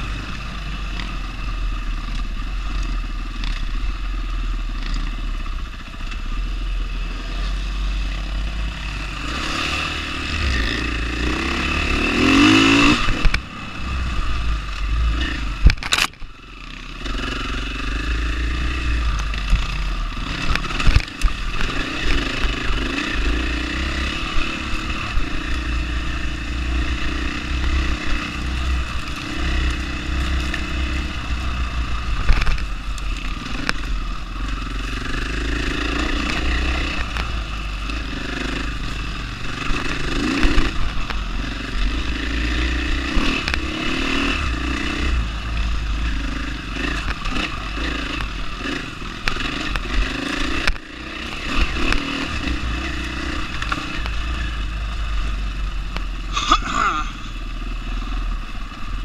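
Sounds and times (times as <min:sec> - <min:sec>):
motorcycle engine revving: 0:00.0 - 0:59.0
motorcycle knocking and rattling: 0:14.3 - 0:42.1, 0:42.9 - 0:56.6.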